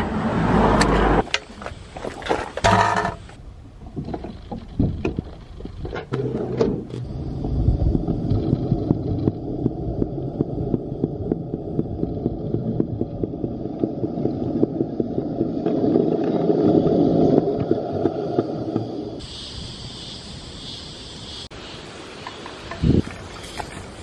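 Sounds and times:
scooter wheels rolling on concrete: 0:04.0 - 0:19.2.

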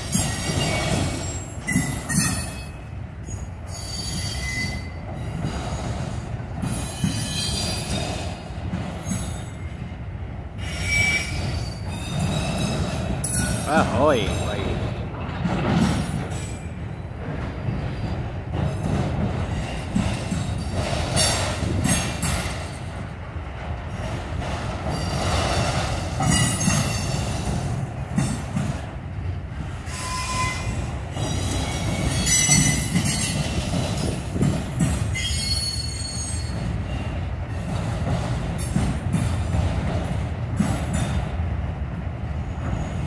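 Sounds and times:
train wheels rumbling on rail: 0:00.0 - 0:43.0
high-pitched wheel squeal: 0:29.9 - 0:30.7.

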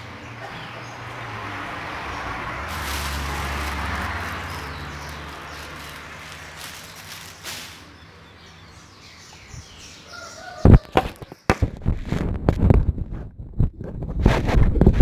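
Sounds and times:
plastic bag rustling: 0:02.5 - 0:07.9.

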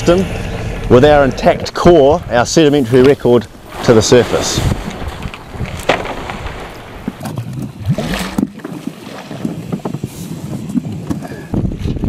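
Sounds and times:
water splashing and lapping: 0:00.0 - 0:12.0
wind buffeting microphone: 0:00.0 - 0:12.0.

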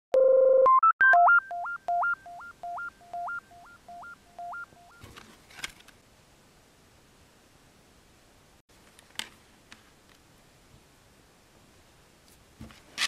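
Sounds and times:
electronic beep jingle: 0:00.2 - 0:05.0
faint rustle and click: 0:05.0 - 0:06.0, 0:08.7 - 0:10.9.

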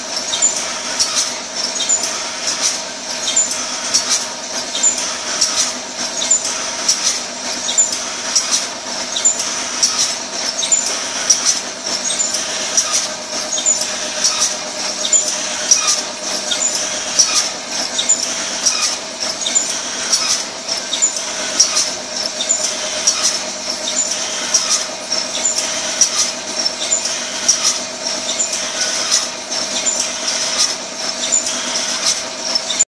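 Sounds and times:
machine clicks and hissing: 0:00.0 - 0:32.8
packing machine hum: 0:00.0 - 0:32.8.

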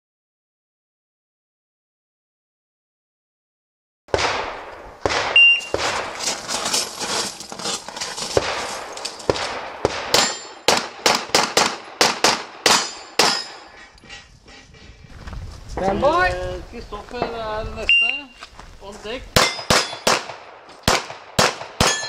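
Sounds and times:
handgun shots: 0:08.4 - 0:13.7, 0:19.4 - 0:22.0
metallic ring of steel targets: 0:10.1 - 0:10.7, 0:12.7 - 0:14.9, 0:19.4 - 0:20.1, 0:21.8 - 0:22.0.

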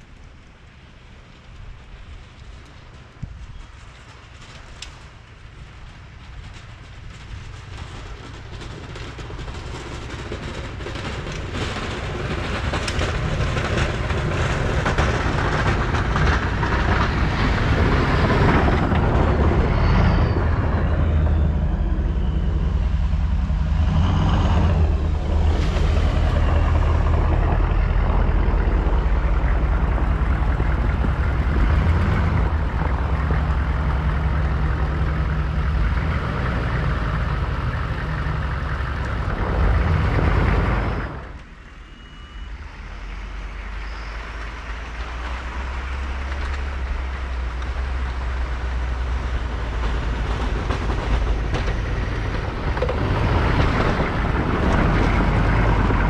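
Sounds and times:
snow plow rushing: 0:00.0 - 0:56.0
pickup truck engine running: 0:07.0 - 0:41.4.

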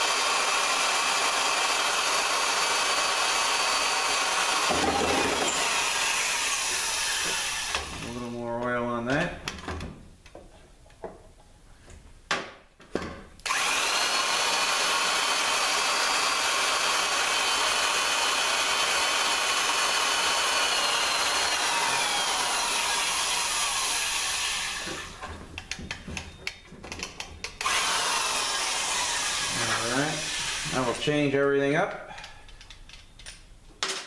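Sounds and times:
electric drill whining: 0:00.0 - 0:08.1, 0:13.4 - 0:26.4, 0:27.6 - 0:31.0.

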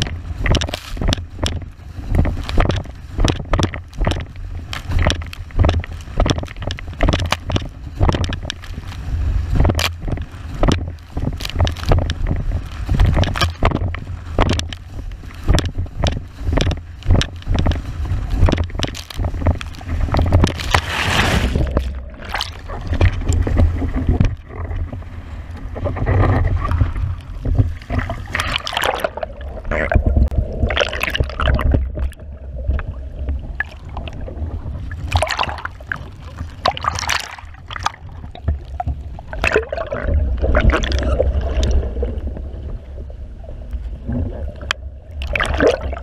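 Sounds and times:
wind buffeting microphone: 0:00.0 - 0:28.8
board hull slapping waves: 0:00.0 - 0:46.0
rushing water: 0:00.0 - 0:46.0.

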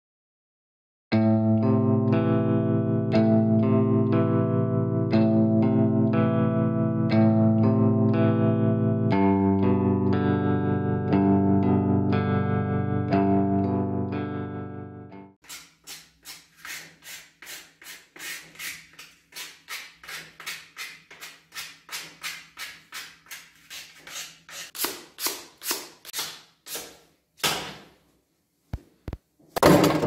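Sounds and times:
sandpaper rasping on wood: 0:15.4 - 0:27.0.

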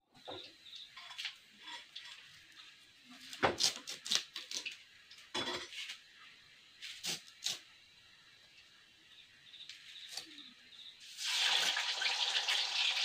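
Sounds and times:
vegetable peeling scrapes: 0:03.2 - 0:04.8, 0:06.8 - 0:07.6.

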